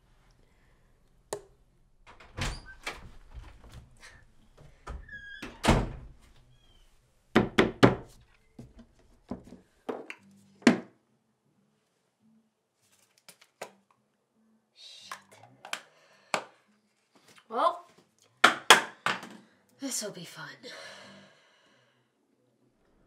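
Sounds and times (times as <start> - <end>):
cabinet door opening and shutting: 2.1 - 6.2.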